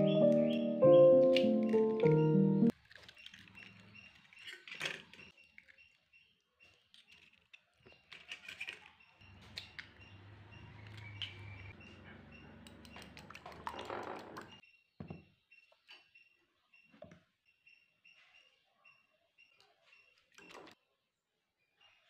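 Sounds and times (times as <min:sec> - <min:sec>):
spoon beating eggs in glass bowl: 0:12.6 - 0:14.6.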